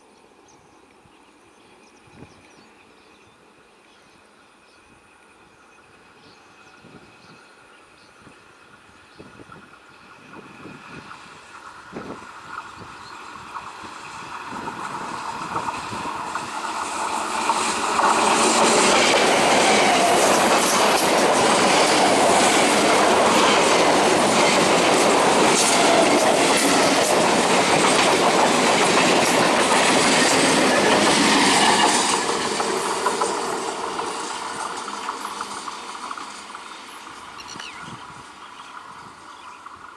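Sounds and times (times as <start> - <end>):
train wheels clattering over rail joints: 9.5 - 37.7.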